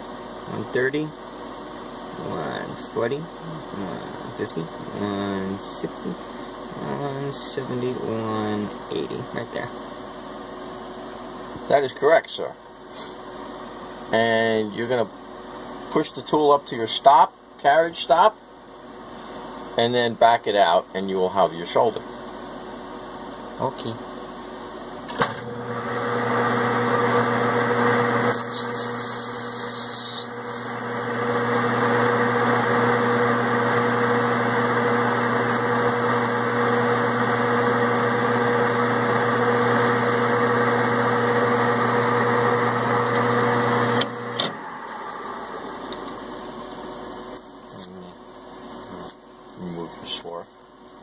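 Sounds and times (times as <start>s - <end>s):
metal lathe humming: 25.6s - 45.9s
lathe tool hissing: 27.8s - 41.9s.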